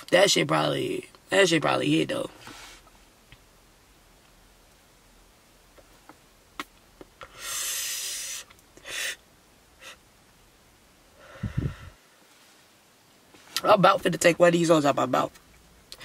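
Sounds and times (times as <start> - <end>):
hissing exhale of smoke: 7.3 - 9.2, 11.2 - 12.1.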